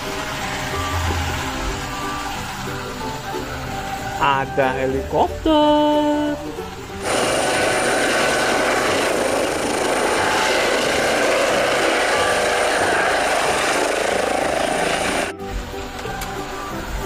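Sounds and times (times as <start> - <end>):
high whine: 0.0 - 4.9, 6.0 - 17.0
helicopter flying low: 7.0 - 15.4.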